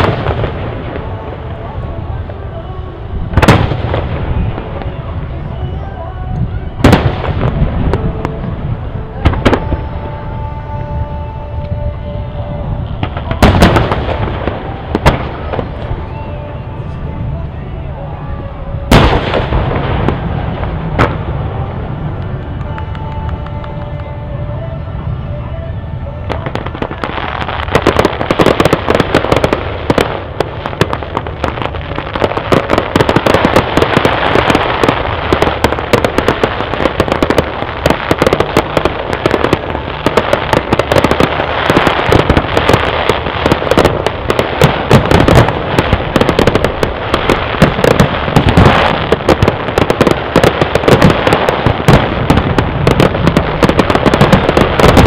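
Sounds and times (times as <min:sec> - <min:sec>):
fireworks bangs and crackling: 0:00.0 - 0:55.0.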